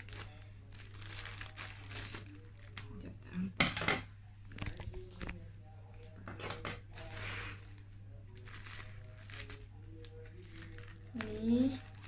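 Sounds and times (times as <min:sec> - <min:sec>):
plastic bag crinkling: 0:00.0 - 0:03.0, 0:06.9 - 0:12.0.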